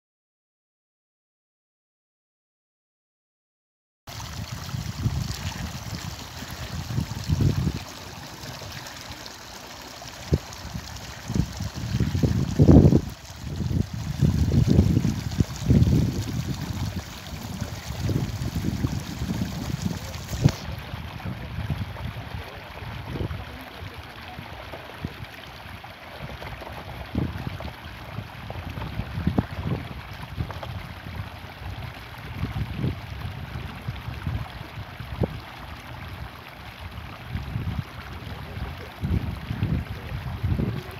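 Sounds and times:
wind buffeting microphone: 0:04.2 - 0:09.0, 0:10.1 - 0:24.4, 0:25.0 - 0:35.4, 0:37.0 - 0:40.9
low rumbling: 0:04.2 - 0:24.0.

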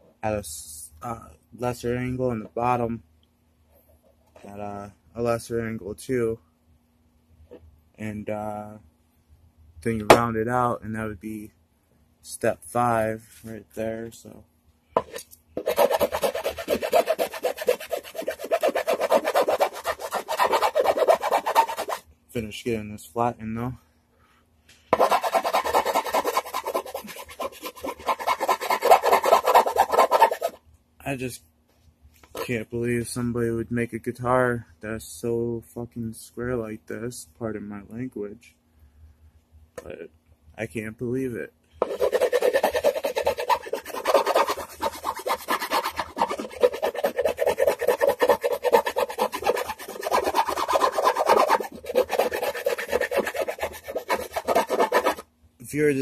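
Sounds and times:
file scraping wood: 0:15.0 - 0:22.0, 0:24.9 - 0:30.6, 0:41.8 - 0:55.2
hand tool rasping wood: 0:15.0 - 0:22.0, 0:25.0 - 0:30.6, 0:41.8 - 0:55.2.

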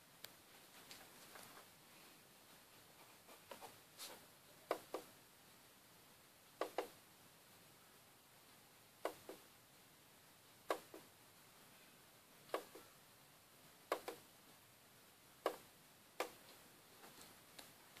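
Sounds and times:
faint hiss: 0:00.0 - 0:18.0
sharp clicks: 0:13.9 - 0:14.2.

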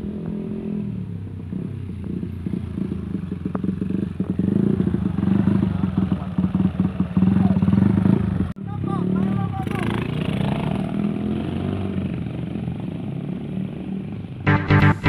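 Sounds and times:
small motorcycle engine: 0:01.5 - 0:12.1.

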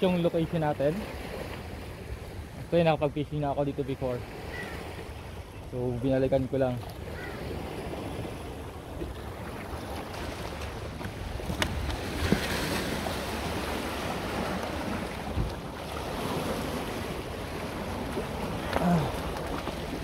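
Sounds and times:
waves washing against rocks: 0:06.7 - 0:20.0
wind rumbling on microphone: 0:06.8 - 0:20.0.

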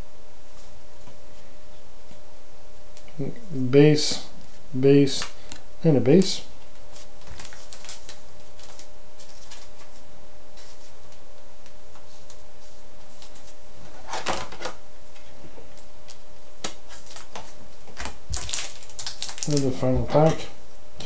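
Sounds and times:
steady hum: 0:00.0 - 0:21.0
trading cards clicking and rustling: 0:05.1 - 0:10.0, 0:16.6 - 0:20.4
wrapper crinkling: 0:06.9 - 0:10.0, 0:16.9 - 0:19.8.

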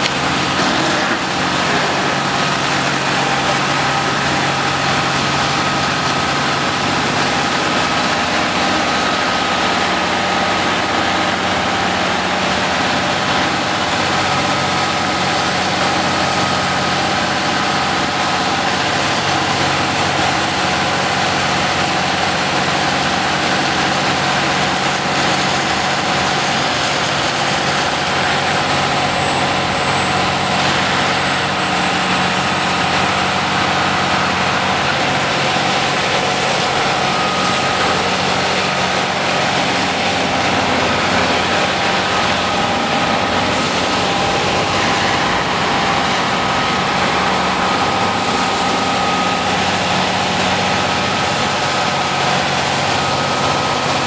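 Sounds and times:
truck engine running: 0:00.0 - 0:54.0
water jet hissing: 0:30.5 - 0:46.5.

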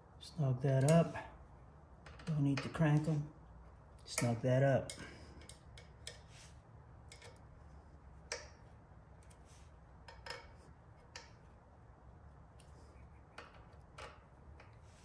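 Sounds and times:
metallic clicks and taps: 0:07.0 - 0:07.5, 0:08.2 - 0:09.4, 0:10.0 - 0:11.6.

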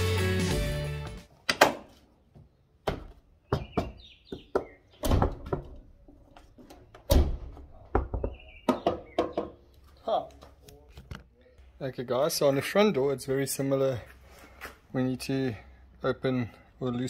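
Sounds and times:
background guitar music: 0:00.0 - 0:01.3.

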